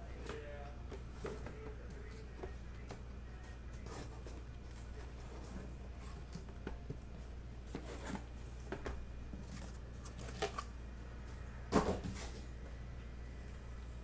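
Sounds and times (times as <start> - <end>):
steady low hum: 0.0 - 14.0
cardboard case rustling and scraping: 7.7 - 8.3.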